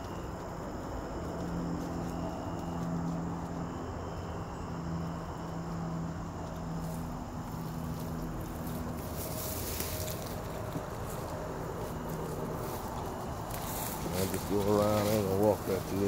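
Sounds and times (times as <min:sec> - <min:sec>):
insects buzzing: 0:00.0 - 0:16.0
low hum: 0:00.0 - 0:16.0
brush rustling and crunching: 0:06.8 - 0:16.0.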